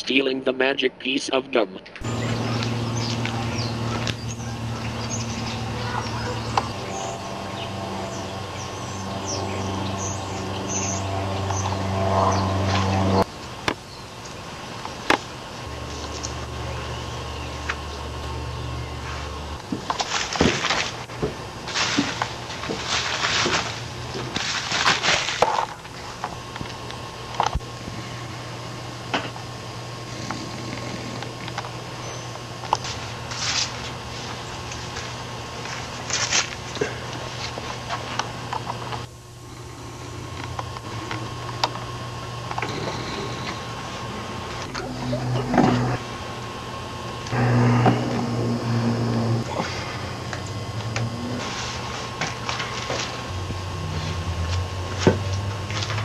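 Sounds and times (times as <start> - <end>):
steady low hum: 1.9 - 56.0
low sustained notes: 2.0 - 19.8, 39.5 - 56.0.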